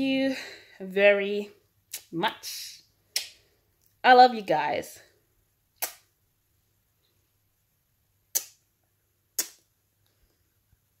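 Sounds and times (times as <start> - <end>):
kissing lip-smacks: 3.1 - 3.4, 5.8 - 6.1, 8.3 - 8.6, 9.4 - 9.7.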